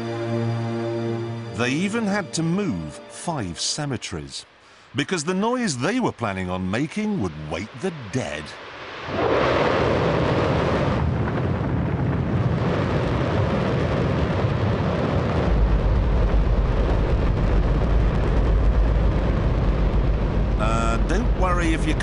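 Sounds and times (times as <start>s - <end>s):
rocket engine roaring: 7.0s - 22.0s
deep rumble: 9.0s - 22.0s.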